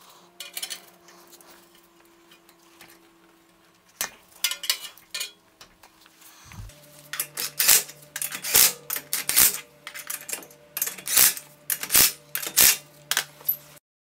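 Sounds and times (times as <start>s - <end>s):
faint motor hum: 0.0s - 13.8s.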